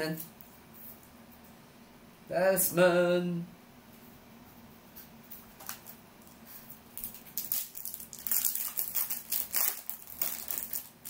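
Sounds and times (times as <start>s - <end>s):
foil wrapper crinkling: 5.6s - 11.0s.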